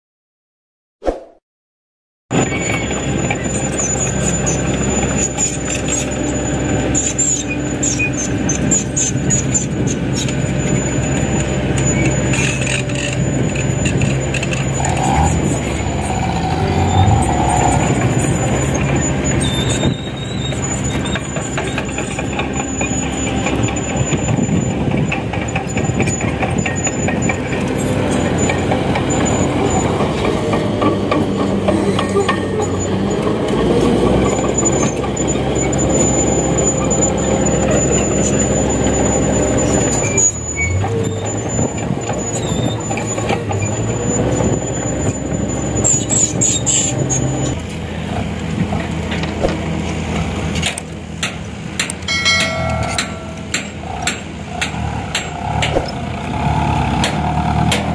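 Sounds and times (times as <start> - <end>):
diesel truck engine running: 2.3 - 57.9
short squeal: 2.4 - 30.0, 34.4 - 47.6, 52.1 - 56.0.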